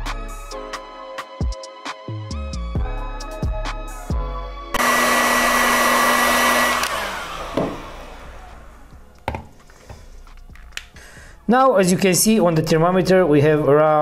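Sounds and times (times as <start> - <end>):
background music: 0.0 - 14.0
heat gun blowing: 4.8 - 9.0.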